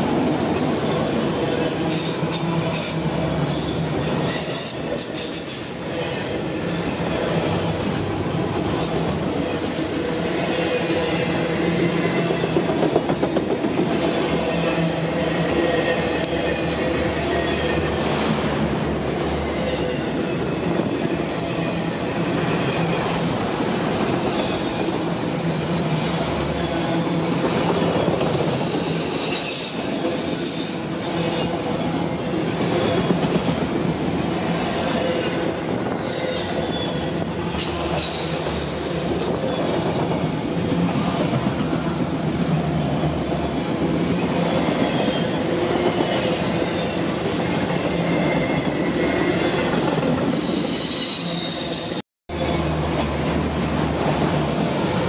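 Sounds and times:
steel wheels rumbling on rail: 0:00.0 - 0:55.0
high wheel squeal: 0:00.7 - 0:07.4, 0:36.0 - 0:39.9, 0:50.3 - 0:52.7.

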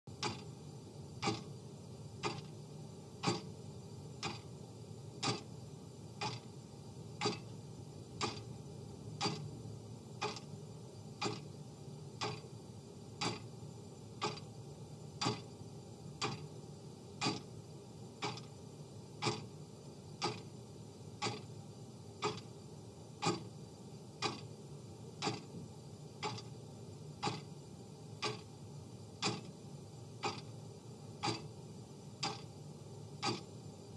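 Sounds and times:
clock ticking: 0:00.2 - 0:00.5, 0:01.2 - 0:01.5, 0:02.2 - 0:02.5, 0:03.2 - 0:03.5, 0:04.2 - 0:04.4, 0:05.2 - 0:05.5, 0:06.2 - 0:06.4, 0:07.2 - 0:07.5, 0:08.2 - 0:08.5, 0:09.2 - 0:09.5, 0:10.2 - 0:10.5, 0:11.2 - 0:11.5, 0:12.2 - 0:12.4, 0:13.2 - 0:13.5, 0:14.2 - 0:14.5, 0:15.2 - 0:15.4, 0:16.2 - 0:16.4, 0:17.2 - 0:17.5, 0:18.2 - 0:18.5, 0:19.2 - 0:19.5, 0:20.2 - 0:20.4, 0:21.2 - 0:21.4, 0:22.2 - 0:22.5, 0:23.2 - 0:23.5, 0:24.2 - 0:24.5, 0:25.2 - 0:25.5, 0:26.2 - 0:26.5, 0:27.2 - 0:27.5, 0:28.2 - 0:28.5, 0:29.2 - 0:29.5, 0:30.2 - 0:30.5, 0:31.2 - 0:31.5, 0:32.2 - 0:32.5, 0:33.2 - 0:33.5.

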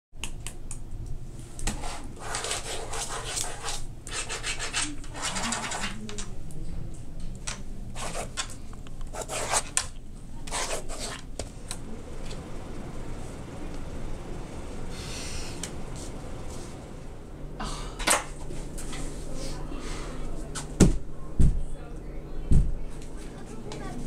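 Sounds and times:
low room hum: 0:00.2 - 0:24.0
pencil scratching on paper: 0:01.7 - 0:05.8, 0:08.0 - 0:08.4, 0:09.1 - 0:09.8, 0:10.5 - 0:11.2.

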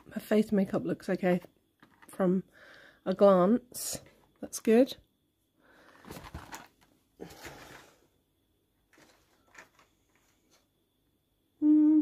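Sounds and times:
cardboard box rustling: 0:06.0 - 0:07.8
woman humming: 0:11.6 - 0:12.0.

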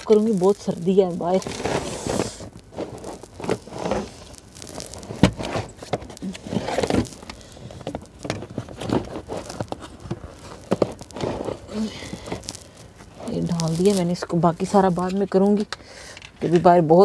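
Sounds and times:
rubber floor mat knocking and rustling: 0:05.1 - 0:07.2.

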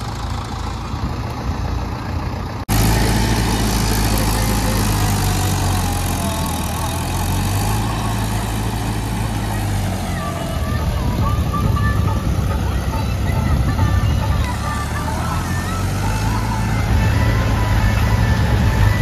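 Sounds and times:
tractor diesel engines running: 0:00.0 - 0:19.0
rotavators churning flooded field: 0:02.7 - 0:11.5.

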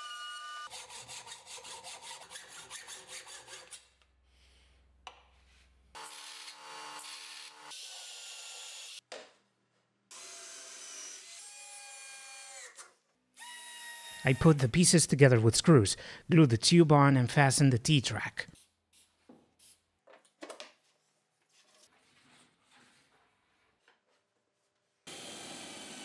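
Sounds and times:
hacksaw cutting steel pipe: 0:00.6 - 0:03.9
bench sanding machine: 0:25.1 - 0:26.0
power tool winding down: 0:25.1 - 0:26.0.

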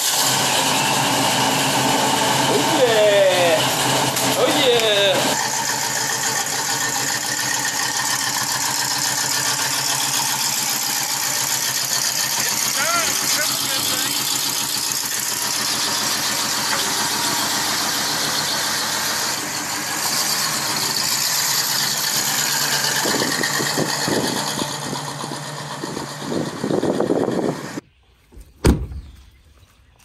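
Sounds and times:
car engine driving off: 0:00.0 - 0:27.8.

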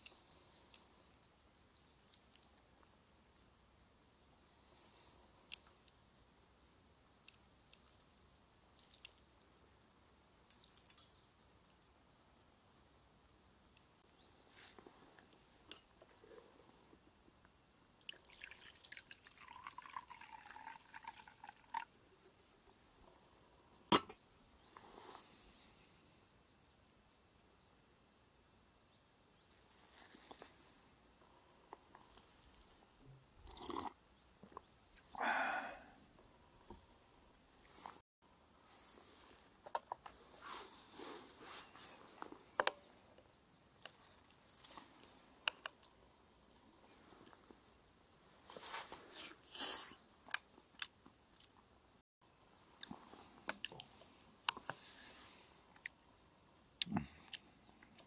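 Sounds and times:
person slurping a drink: 0:33.5 - 0:34.0.

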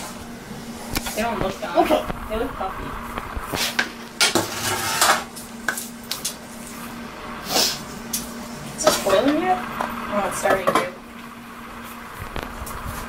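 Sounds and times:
pots and pans clanking: 0:03.7 - 0:05.3.

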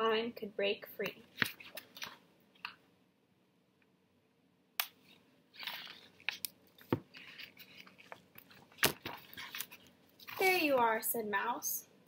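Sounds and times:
paper page rustle: 0:01.3 - 0:02.2, 0:05.0 - 0:10.9.

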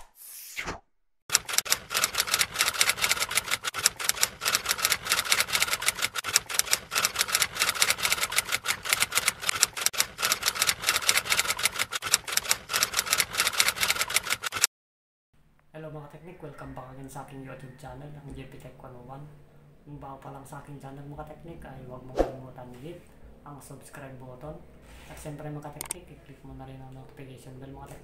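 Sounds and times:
typewriter keys clacking: 0:01.3 - 0:14.7.

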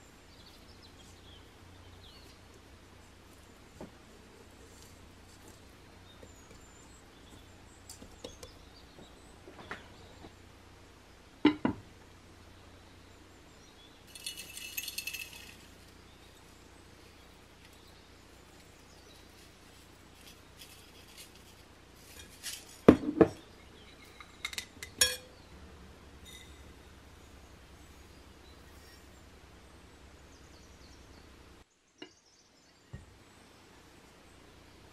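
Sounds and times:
dishes knocking and clinking: 0:11.5 - 0:11.8, 0:22.9 - 0:23.4.

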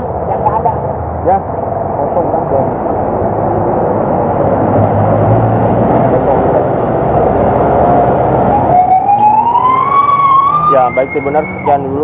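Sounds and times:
bus engine hum: 0:00.0 - 0:12.0
siren wailing: 0:07.8 - 0:12.0.

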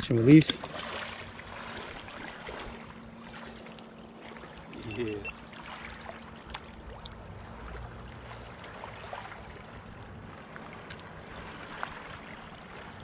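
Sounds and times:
small water splashes: 0:00.0 - 0:13.0
water lapping and sloshing: 0:00.0 - 0:13.0.

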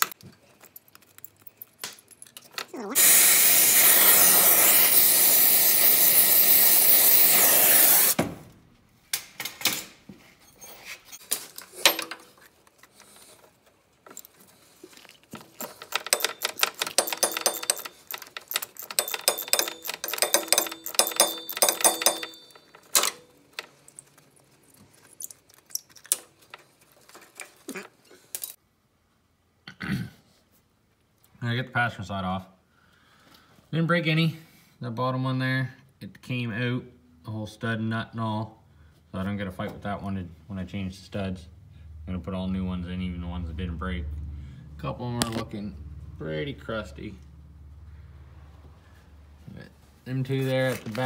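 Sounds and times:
gas torch flame hissing: 0:03.0 - 0:08.2
metal clicks: 0:15.4 - 0:24.2
ratchet wrench clicking: 0:15.6 - 0:23.2.

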